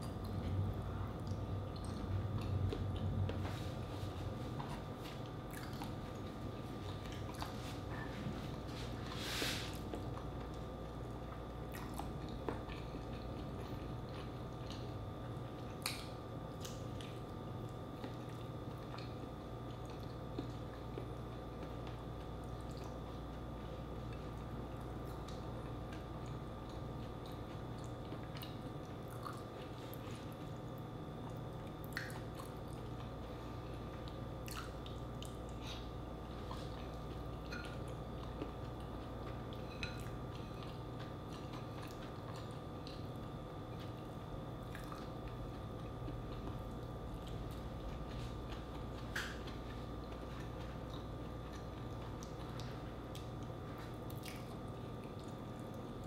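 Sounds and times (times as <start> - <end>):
wet chewing: 4.6 - 8.1, 24.0 - 56.0.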